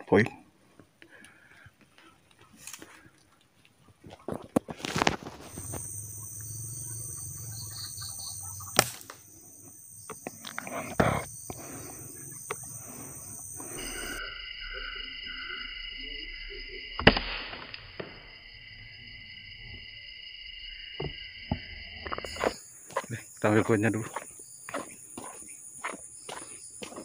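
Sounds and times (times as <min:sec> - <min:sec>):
insects buzzing: 0:04.6 - 0:27.0
bird chirps: 0:05.5 - 0:10.3, 0:11.3 - 0:16.8
air rifle firing: 0:17.0 - 0:17.8.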